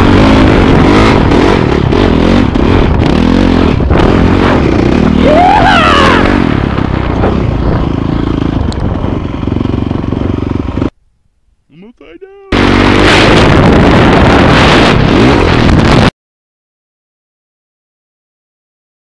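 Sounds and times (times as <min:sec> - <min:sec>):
wind rush: 0:00.0 - 0:10.1, 0:12.6 - 0:16.1
dirt bike engine revving: 0:00.0 - 0:10.9, 0:12.5 - 0:16.1.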